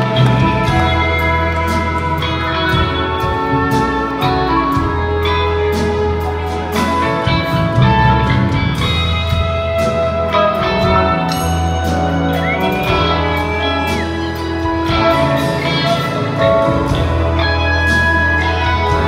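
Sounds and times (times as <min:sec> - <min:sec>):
live rock band playing: 0:00.0 - 0:19.0
orchestra: 0:00.0 - 0:19.0.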